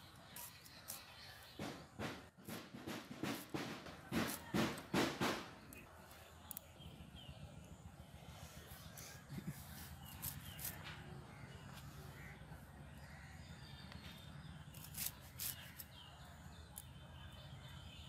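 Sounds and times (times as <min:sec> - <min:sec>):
faint birds calling: 0:00.0 - 0:18.0
knife slicing herbs: 0:00.1 - 0:01.9, 0:03.2 - 0:05.8, 0:08.8 - 0:11.1, 0:14.6 - 0:17.0.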